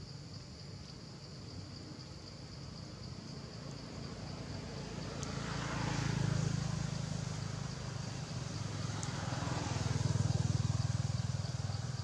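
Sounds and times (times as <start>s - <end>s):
vehicle engine passing: 3.8s - 12.0s.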